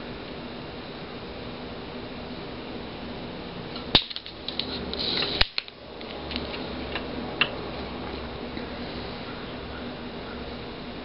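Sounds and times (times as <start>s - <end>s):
sharp snaps: 3.8s - 7.6s.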